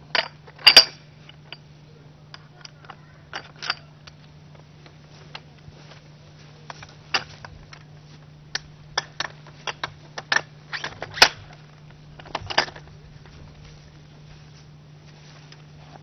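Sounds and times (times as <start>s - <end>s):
low hum: 0.0s - 16.0s
metal parts clicking and clanking: 0.1s - 1.6s, 2.3s - 4.3s, 6.7s - 7.9s, 8.5s - 13.0s.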